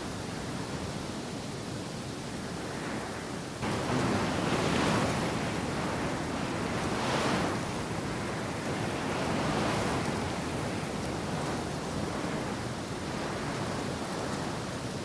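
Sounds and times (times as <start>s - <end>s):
steady rushing noise: 3.6s - 15.0s.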